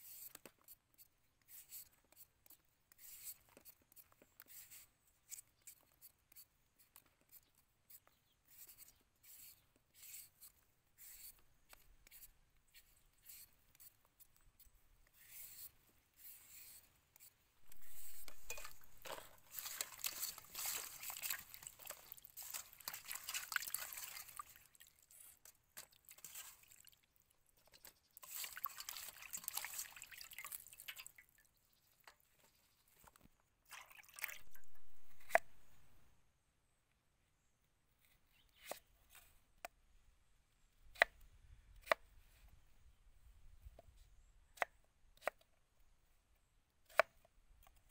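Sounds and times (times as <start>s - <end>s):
peeler scraping melon skin: 15.1s - 23.1s, 34.4s - 35.6s
water splashing in metal basin: 17.8s - 24.9s, 28.2s - 31.4s, 33.7s - 35.2s.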